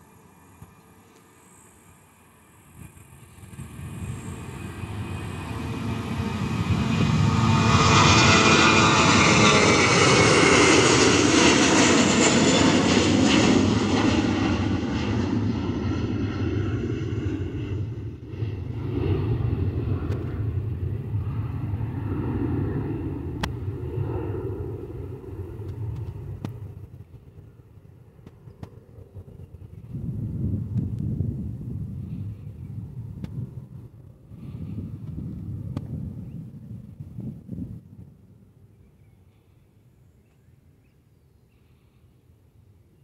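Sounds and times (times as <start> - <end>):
jet engine whine falling in pitch: 0.0 - 34.0
airliner engine passing: 0.0 - 43.0.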